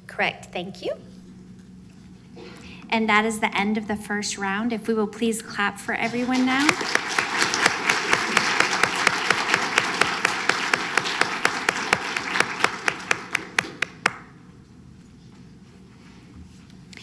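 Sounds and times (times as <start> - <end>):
audience applauding: 6.1 - 14.3
sharp hand claps: 6.2 - 14.3.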